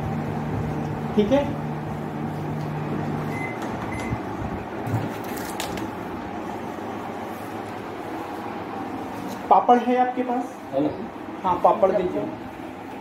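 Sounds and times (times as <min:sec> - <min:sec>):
microwave oven humming: 0:00.0 - 0:13.0
short high-pitched oven beeps: 0:03.2 - 0:04.3.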